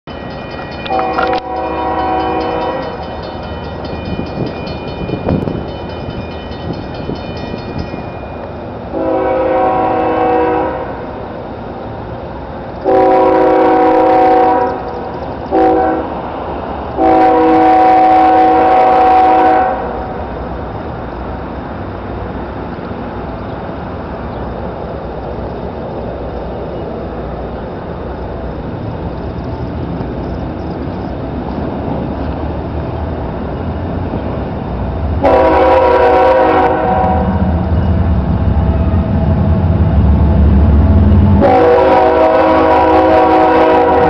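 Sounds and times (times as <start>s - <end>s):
locomotive air horn: 0.8s - 3.0s, 8.9s - 11.2s, 12.8s - 14.9s, 15.5s - 16.2s, 17.0s - 20.2s, 35.2s - 37.4s, 41.4s - 44.0s.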